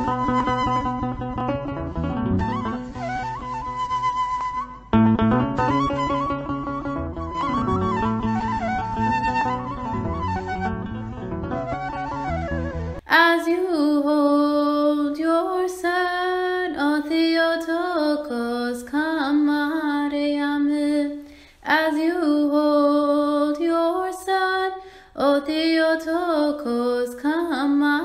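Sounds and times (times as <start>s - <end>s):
instrumental music: 0.0s - 13.1s
woman singing unaccompanied hymn: 13.0s - 28.0s.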